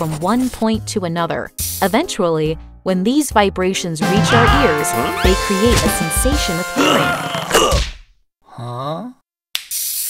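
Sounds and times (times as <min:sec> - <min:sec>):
hiss: 0:09.7 - 0:10.0.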